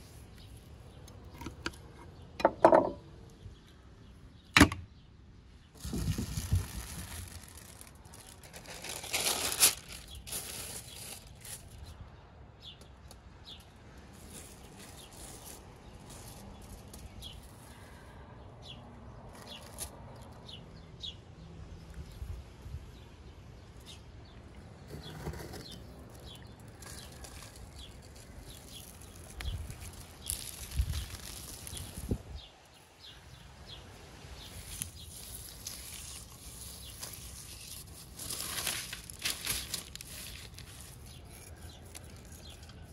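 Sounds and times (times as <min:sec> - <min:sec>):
small birds chirping: 0:03.2 - 0:42.9
foil and paper crinkling: 0:05.8 - 0:11.9, 0:26.1 - 0:32.4, 0:34.1 - 0:42.9.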